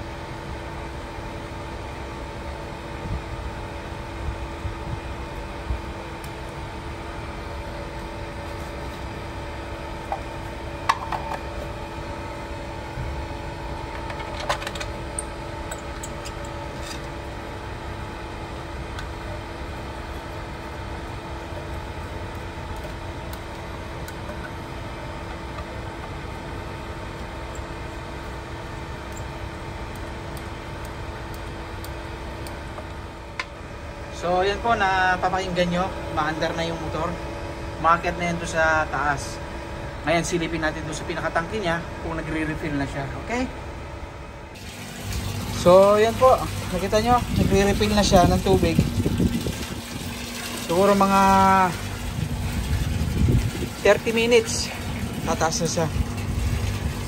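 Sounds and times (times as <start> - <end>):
water pump motor humming: 0.0 - 57.0.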